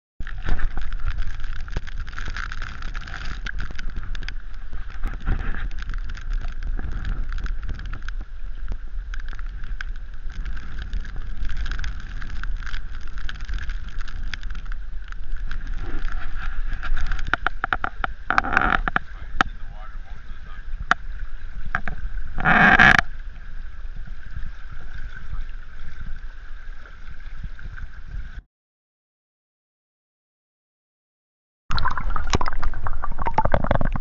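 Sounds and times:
river current rushing and splashing: 0.2s - 28.1s.

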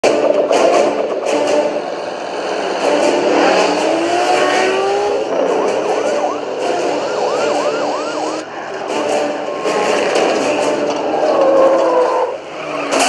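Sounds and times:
truck engine revving: 0.0s - 13.0s
rising and falling whine: 3.2s - 8.5s.

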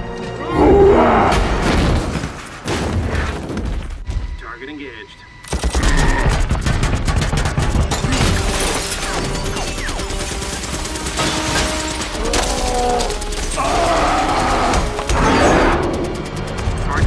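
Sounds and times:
orchestral score: 0.0s - 1.9s, 9.4s - 17.0s
rapid cannon gunfire: 5.4s - 17.0s
debris shattering: 5.5s - 15.5s.

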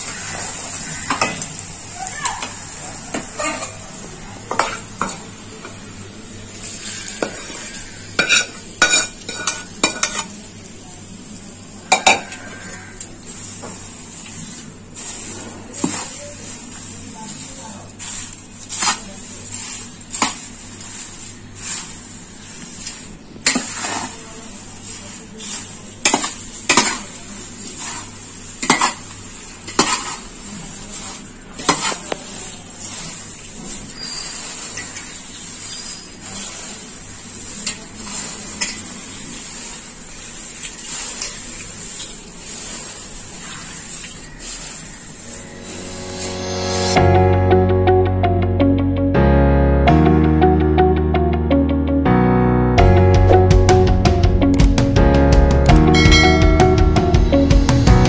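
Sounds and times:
dry flakes rustling: 12.4s - 47.0s
spoon scraping glass bowl: 40.6s - 42.1s
music: 45.5s - 58.0s.

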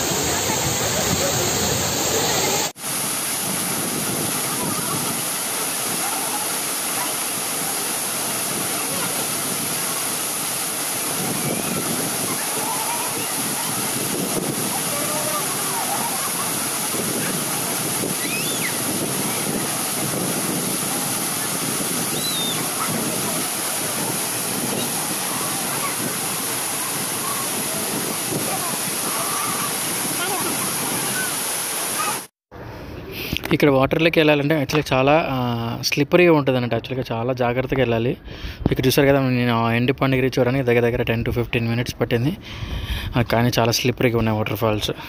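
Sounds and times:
waterfall rushing: 0.0s - 32.3s.

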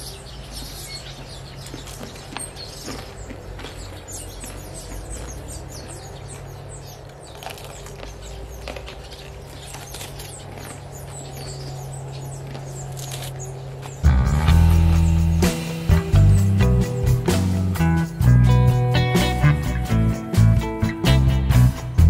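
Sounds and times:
small birds chirping: 0.0s - 22.0s
steady low hum: 2.2s - 20.6s
guitar music: 14.0s - 22.0s.

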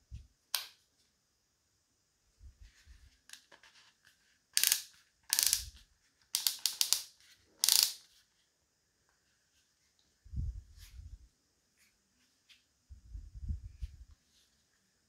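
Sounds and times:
rapid ratcheting clicks: 4.6s - 5.8s, 6.4s - 8.0s.

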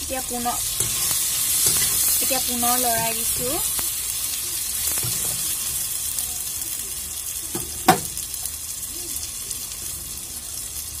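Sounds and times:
masala sizzling in oil: 0.0s - 11.0s
spatula knocking pan: 0.7s - 3.7s, 4.9s - 5.8s, 7.5s - 8.2s.

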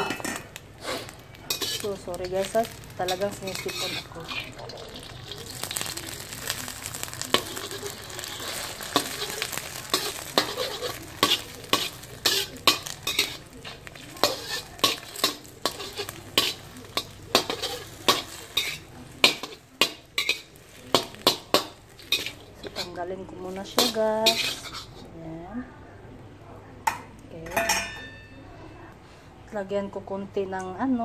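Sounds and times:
metal spatula scraping pan: 0.0s - 5.9s, 6.5s - 25.2s
egg sizzling in oil: 0.4s - 25.1s.

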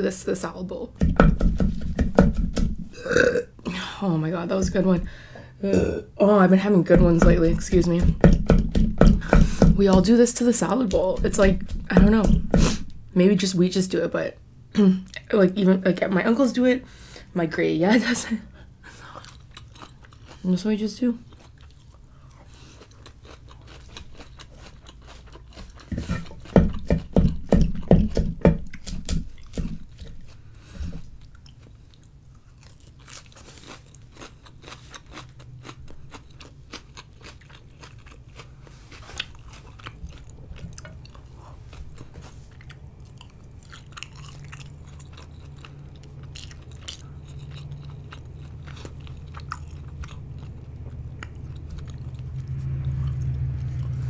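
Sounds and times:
chewing crisp lettuce: 19.0s - 20.6s, 21.2s - 27.8s, 28.7s - 54.0s.

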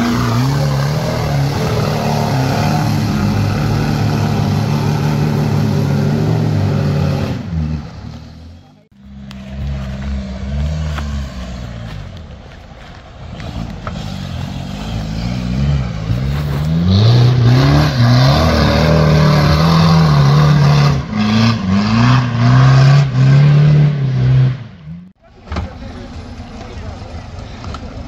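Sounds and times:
off-road vehicle engine revving: 0.0s - 28.0s.

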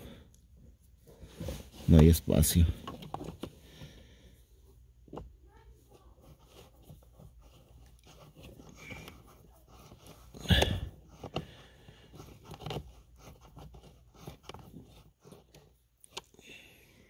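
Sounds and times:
screwdriver scraping on plastic: 6.2s - 16.3s.

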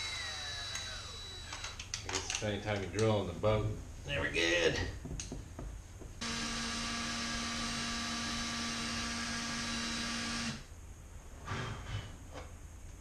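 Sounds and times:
electric drill whining: 0.0s - 1.9s, 6.2s - 10.7s.

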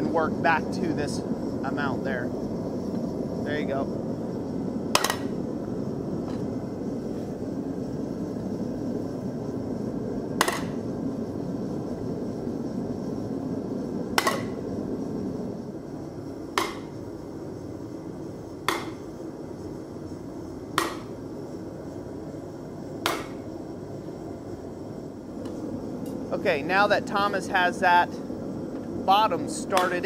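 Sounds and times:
hammer blows on hot steel: 4.9s - 5.5s, 10.4s - 10.9s, 14.1s - 14.6s, 16.5s - 17.1s, 18.6s - 19.2s, 20.7s - 21.2s, 23.0s - 23.5s, 29.1s - 30.0s.

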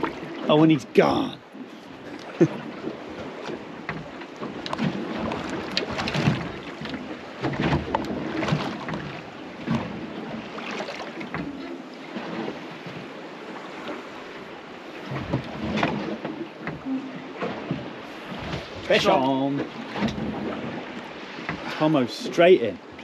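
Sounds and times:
water slapping against a hull: 0.0s - 23.0s.

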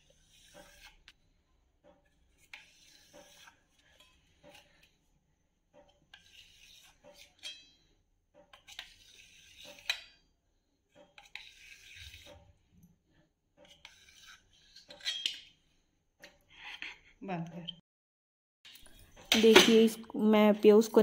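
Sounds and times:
knife scraping a metal pot: 0.0s - 1.2s, 1.8s - 5.2s, 5.8s - 17.0s.

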